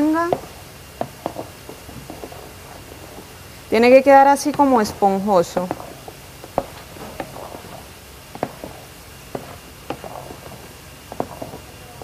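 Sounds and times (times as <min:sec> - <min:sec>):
spatula tapping metal bowl: 0:04.4 - 0:07.6.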